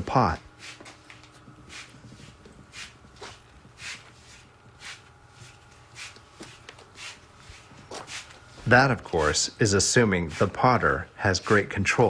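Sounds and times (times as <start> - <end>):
low steady hum: 0.0 - 12.0
hands scuffing wet clay: 1.7 - 9.5, 10.2 - 10.6, 11.3 - 12.0.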